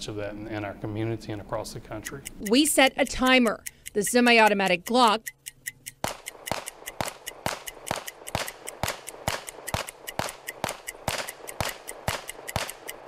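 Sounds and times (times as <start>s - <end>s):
pistol shots: 6.0s - 13.0s.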